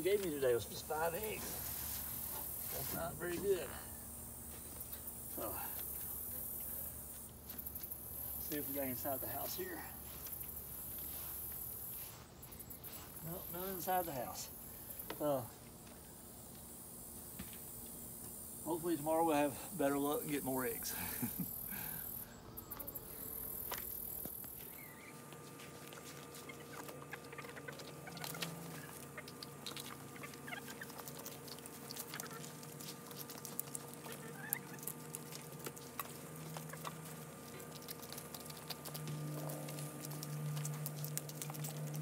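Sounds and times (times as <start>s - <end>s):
chickens pecking at food: 0.0s - 17.3s, 20.0s - 42.0s
chickens clucking softly: 26.3s - 32.7s, 33.8s - 35.0s.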